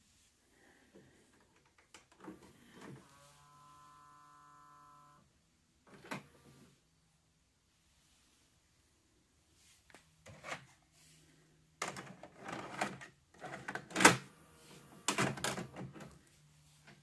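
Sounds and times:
plastic clicks and mechanical clunks: 15.0s - 16.2s.

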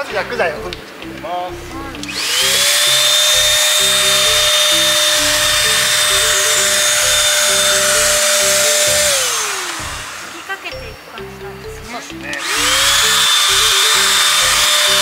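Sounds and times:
spray gun motor whine: 2.0s - 10.7s, 12.3s - 15.0s.

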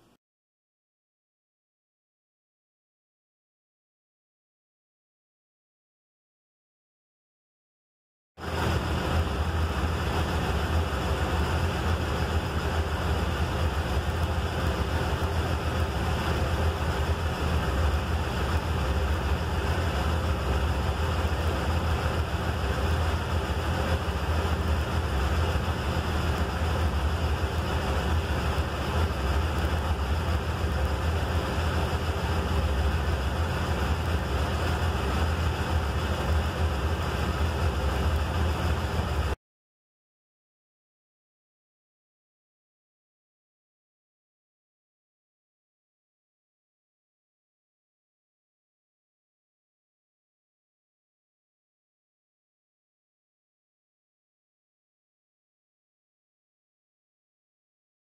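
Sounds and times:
motorcycle engine idling: 9.3s - 39.4s.

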